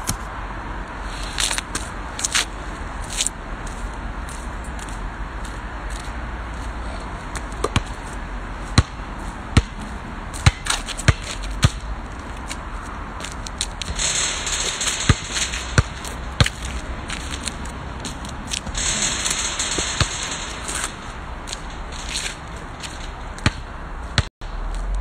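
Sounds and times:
basketball bouncing on tarmac: 0:07.3 - 0:24.3.

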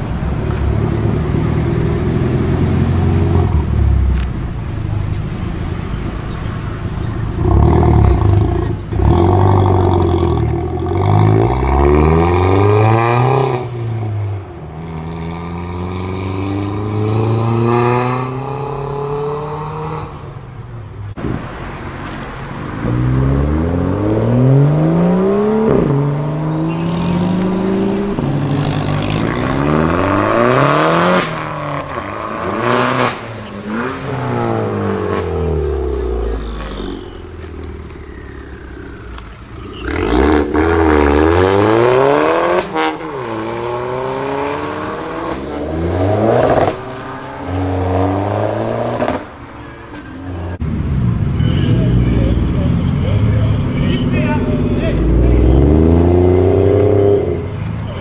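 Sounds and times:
second car revving: 0:00.0 - 0:49.6, 0:50.3 - 0:58.0
car engine revving through gears: 0:07.1 - 0:20.2, 0:22.6 - 0:36.5, 0:37.8 - 0:49.3, 0:54.6 - 0:57.8.

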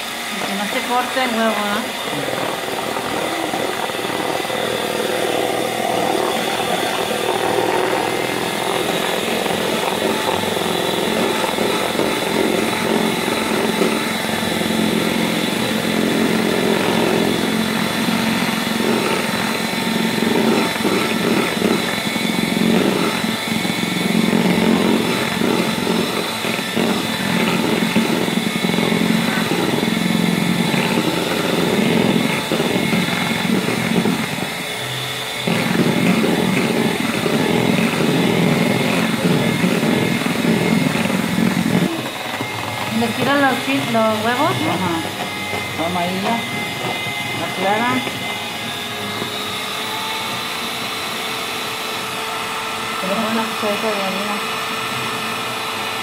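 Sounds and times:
electric hand mixer whining: 0:00.0 - 0:56.0.

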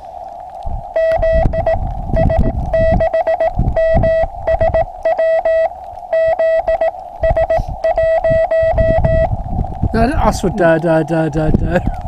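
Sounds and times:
receiver hiss: 0:00.0 - 0:12.0
morse code beeps: 0:01.0 - 0:09.3.

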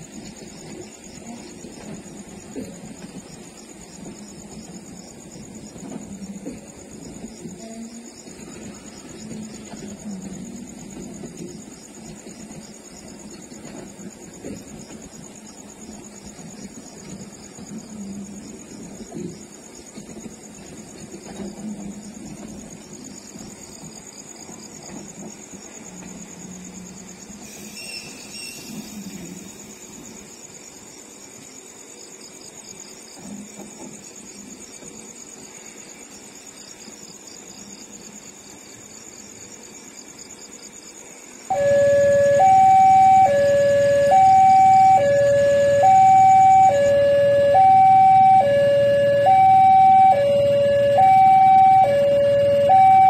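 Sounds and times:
two-tone crossing warning alarm: 0:41.5 - 0:53.0.

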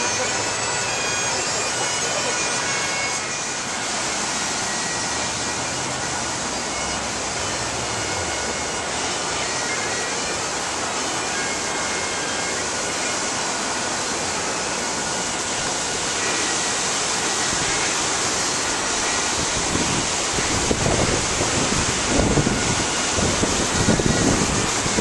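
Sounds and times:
river water rushing through rapids: 0:00.0 - 0:25.0
wind buffeting microphone: 0:18.7 - 0:25.0.

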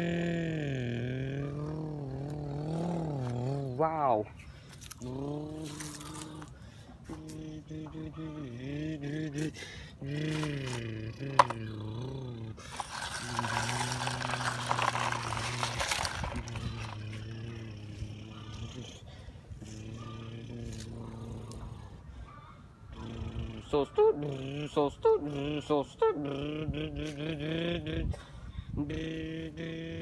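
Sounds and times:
low voice humming and droning: 0:00.0 - 0:04.2, 0:05.0 - 0:22.1, 0:22.9 - 0:30.0
rustling scraping noise: 0:12.6 - 0:17.2.

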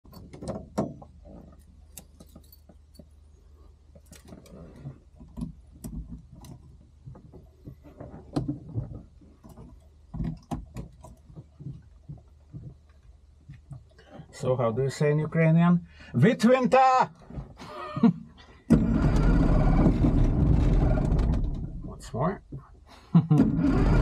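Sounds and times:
clicks and knocks of handling gear: 0:00.0 - 0:03.2, 0:03.9 - 0:14.4.

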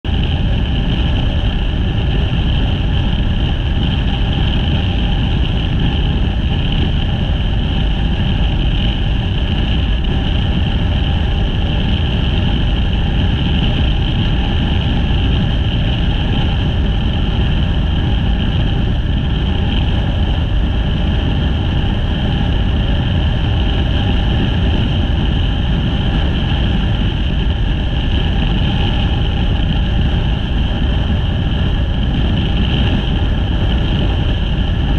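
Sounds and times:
wind and road noise: 0:00.0 - 0:34.9
motorcycle engine cruising: 0:00.1 - 0:34.9.

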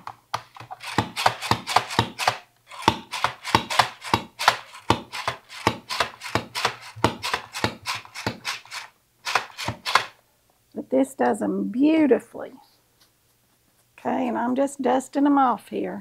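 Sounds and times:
slicer clicking through mushrooms: 0:00.0 - 0:10.2.

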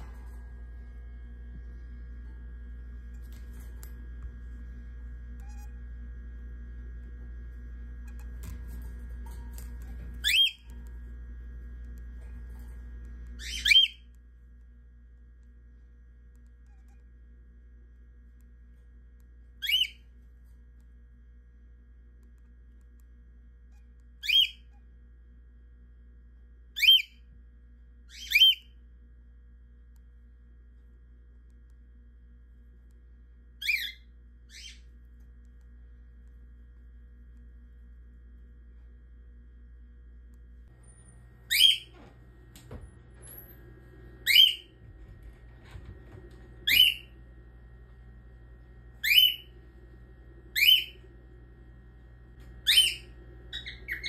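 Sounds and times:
cockatiel whistled calls: 0:13.4 - 0:14.0, 0:19.6 - 0:20.0, 0:26.8 - 0:27.2, 0:44.2 - 0:44.7, 0:46.6 - 0:47.1, 0:49.0 - 0:49.5, 0:50.6 - 0:51.0, 0:52.6 - 0:54.0.

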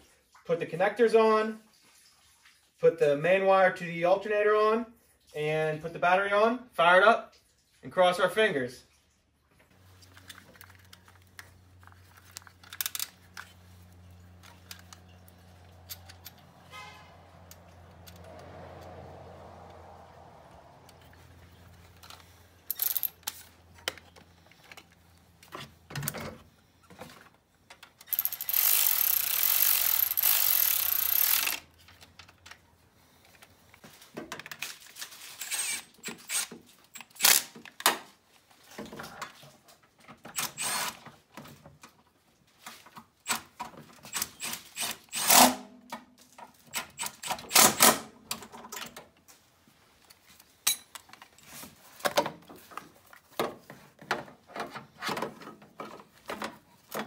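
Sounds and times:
tools and metal parts clanking: 0:09.9 - 0:18.4, 0:20.9 - 0:32.7, 0:50.1 - 0:57.0
cordless ratchet whirring: 0:22.1 - 0:23.5, 0:28.0 - 0:31.7.

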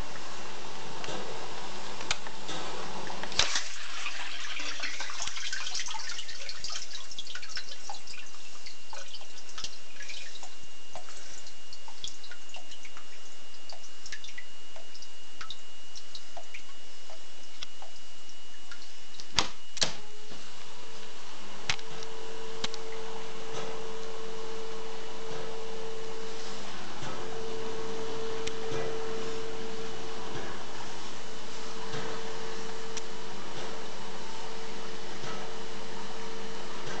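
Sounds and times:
water dripping and trickling: 0:03.2 - 0:19.4.

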